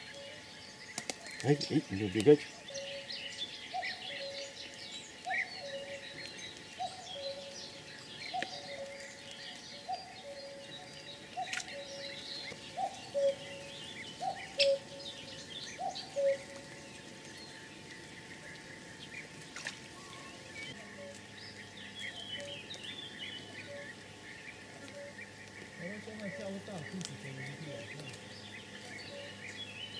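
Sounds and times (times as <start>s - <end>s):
background hiss: 0.0s - 29.9s
bird low hooting note: 0.0s - 29.9s
small birds chirping: 0.0s - 29.9s.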